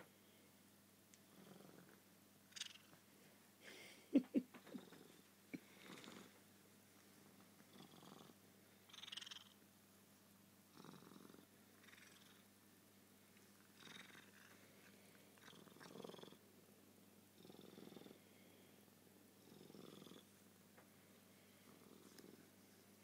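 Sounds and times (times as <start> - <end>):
cat purring: 1.3 - 3.0, 4.2 - 6.4, 7.6 - 9.6, 10.7 - 12.5, 13.4 - 16.4, 17.4 - 18.6, 19.4 - 20.4, 21.4 - 22.7.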